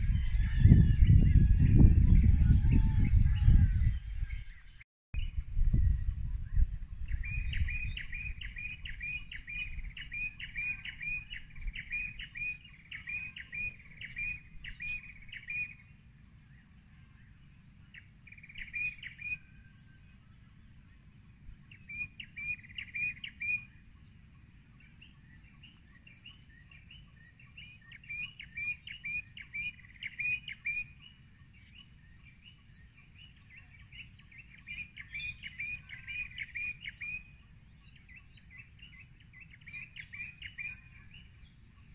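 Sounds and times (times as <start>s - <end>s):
bird chirping: 0.0s - 41.9s
steady low rumble: 5.2s - 10.2s.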